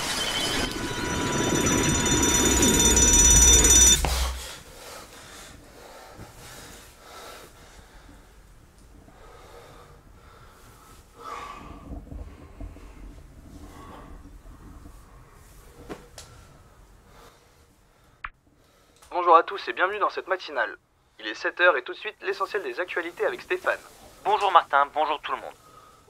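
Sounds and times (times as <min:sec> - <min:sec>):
high ringing drone: 0:00.0 - 0:04.6
low rumble: 0:00.0 - 0:04.6
man breathing heavily: 0:04.0 - 0:14.4.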